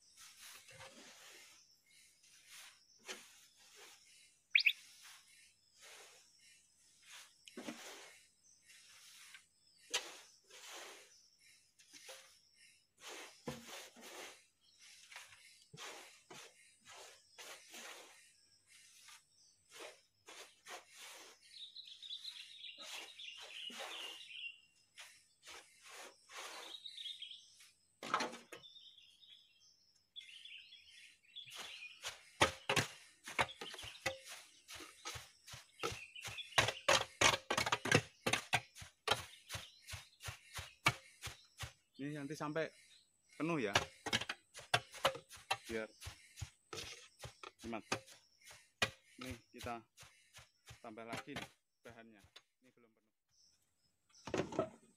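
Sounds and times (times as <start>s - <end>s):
birds chirping: 0.0s - 54.9s
wooden pole thudding into shavings: 2.5s - 4.0s, 7.1s - 8.2s, 13.0s - 14.4s, 28.0s - 28.6s, 31.5s - 42.1s.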